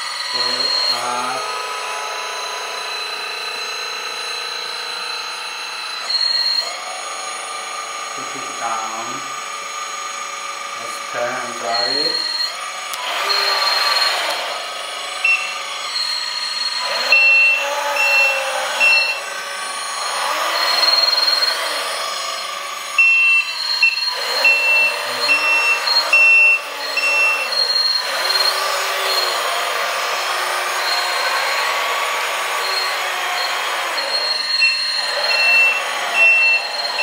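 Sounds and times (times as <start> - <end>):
high whine of hydraulic pump: 0.0 - 37.0
toy truck engine sound revving: 0.0 - 37.0
reversing beeps: 0.3 - 1.5, 6.0 - 6.6, 11.5 - 12.6, 13.3 - 14.4, 15.2 - 19.2, 23.0 - 29.4, 32.6 - 37.0.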